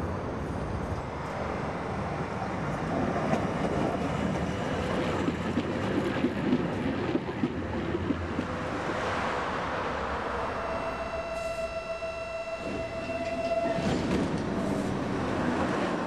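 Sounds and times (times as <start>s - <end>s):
tram wheels rumbling on rails: 0.0s - 16.0s.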